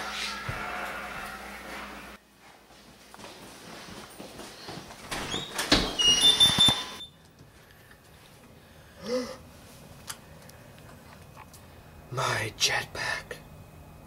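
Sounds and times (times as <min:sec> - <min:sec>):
door squeaking: 0:05.1 - 0:07.2
person humming: 0:09.0 - 0:09.4.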